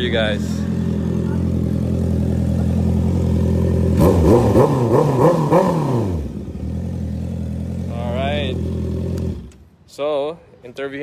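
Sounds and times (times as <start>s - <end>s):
motorcycle engine idling: 0.0s - 4.5s, 6.1s - 9.6s
motorcycle engine revving: 0.0s - 9.7s.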